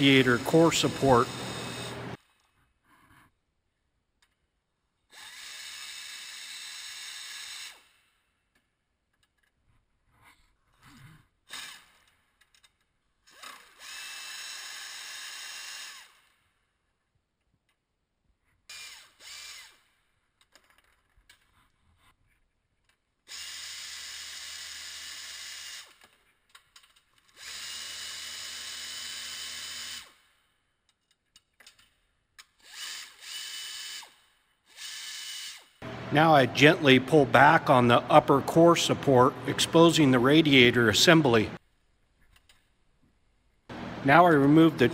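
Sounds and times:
air ratchet whirring: 0.0s - 2.3s, 5.1s - 8.2s, 13.3s - 16.4s, 18.7s - 20.6s, 23.3s - 35.8s.

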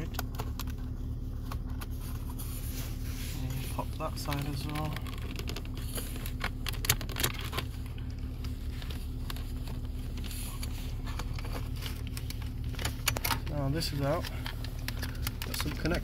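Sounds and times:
steady low hum: 0.0s - 16.0s
plastic clicks and scrapes: 4.2s - 7.7s.

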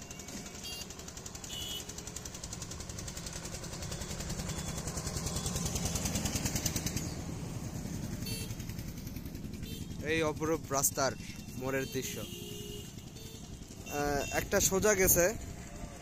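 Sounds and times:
vehicle engine chugging past: 0.1s - 11.7s.

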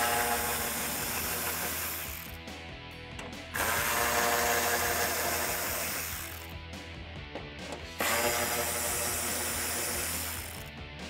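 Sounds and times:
hand ratchet clicking: 0.0s - 2.4s, 3.2s - 6.6s, 8.0s - 10.7s
background music: 0.0s - 11.0s.

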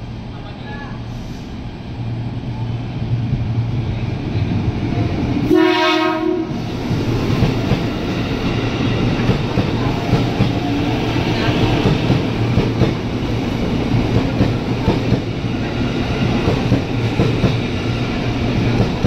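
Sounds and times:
train horn blast: 5.5s - 6.6s
electric train running: 6.6s - 19.0s.

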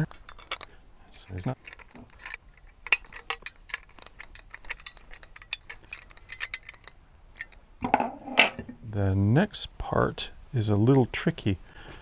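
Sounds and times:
metal hardware clicking and clinking: 0.0s - 8.8s.

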